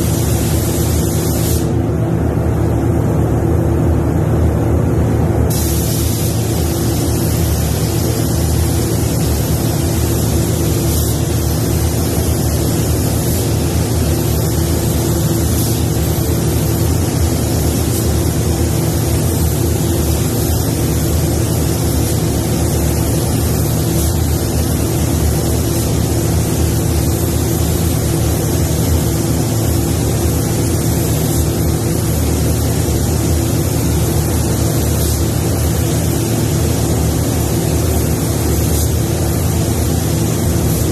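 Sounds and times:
paint spray gun hissing: 0.0 - 1.8, 5.5 - 40.9.

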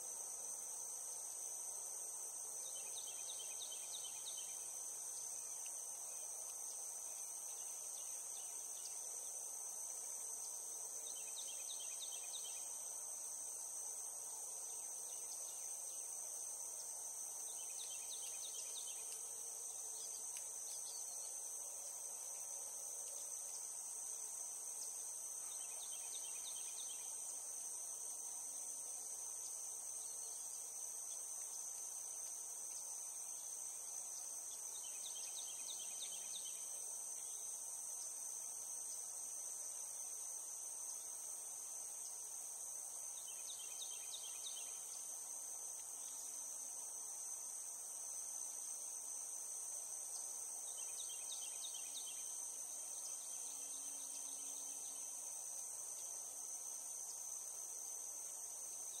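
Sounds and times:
cicadas droning: 0.0 - 59.0.

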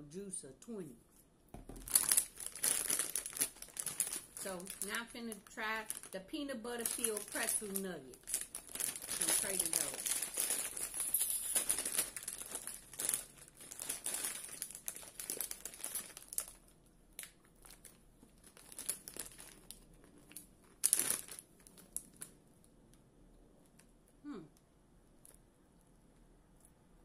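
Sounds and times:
plastic snack bag crinkling: 1.6 - 22.7.

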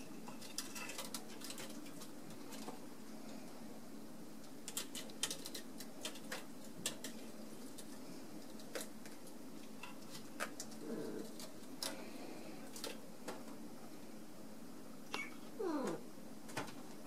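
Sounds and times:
cats playing clicks and taps: 0.2 - 3.6, 4.4 - 13.7.

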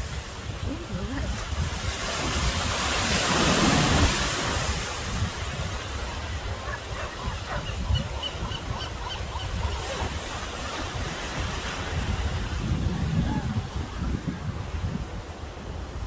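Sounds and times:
surf breaking over rocks: 0.0 - 6.2
wind rumbling on microphone: 0.0 - 16.0.

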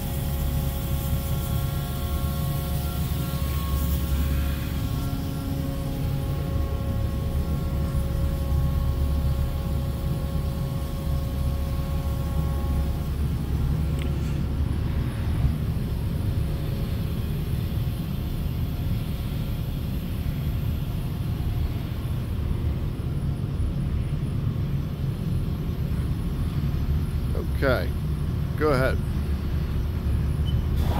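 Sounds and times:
high multi-tone whine: 0.0 - 30.9
low machinery hum: 0.0 - 30.9.

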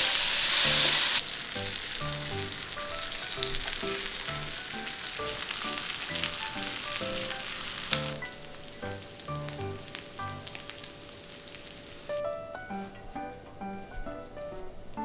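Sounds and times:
meat sizzling on a grill: 0.0 - 12.2.

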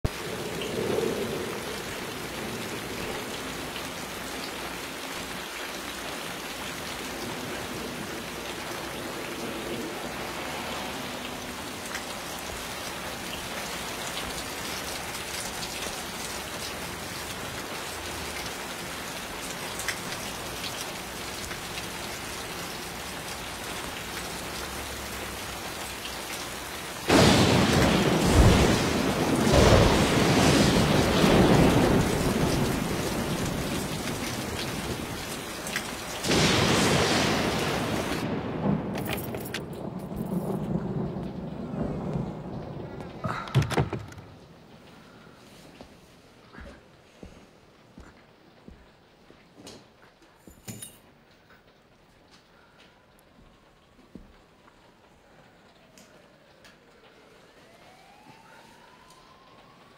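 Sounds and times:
steady rain falling: 0.0 - 59.9
thunder crash: 27.1 - 35.1, 36.2 - 44.4.

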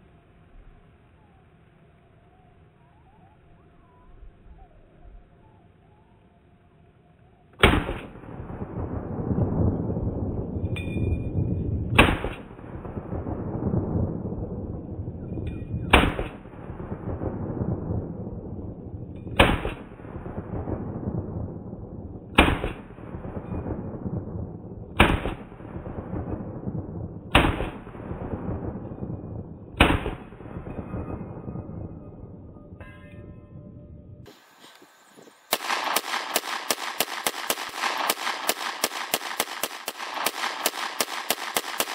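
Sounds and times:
rifle shots with rolling echo: 7.6 - 32.9, 35.4 - 41.9.

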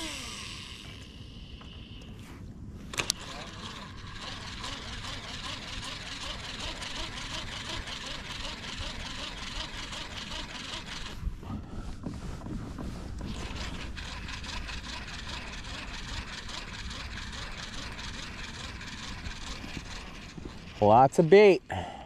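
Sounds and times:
fishing reel clicking: 0.0 - 2.1, 2.9 - 11.2, 14.0 - 20.9
low steady rumble: 0.0 - 22.0.

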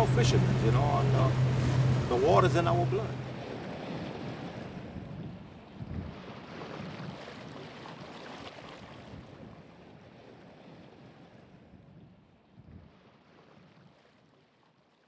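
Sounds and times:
water rushing: 0.0 - 9.1.

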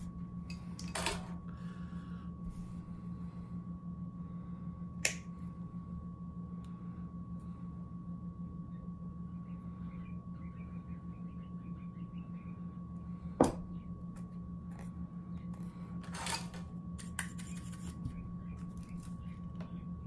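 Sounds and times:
steady low hum: 0.0 - 20.0
workbench handling noises: 16.0 - 18.0.

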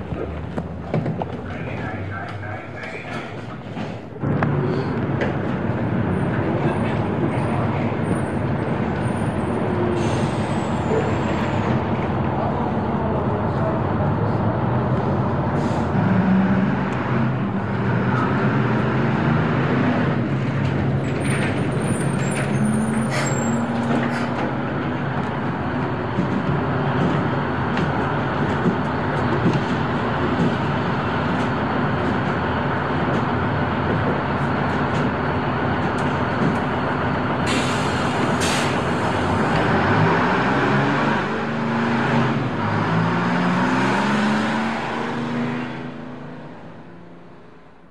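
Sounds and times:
bus engines revving: 0.0 - 47.9
air brakes hissing: 9.9 - 11.6, 15.6 - 16.0, 21.3 - 23.8, 37.4 - 39.2.

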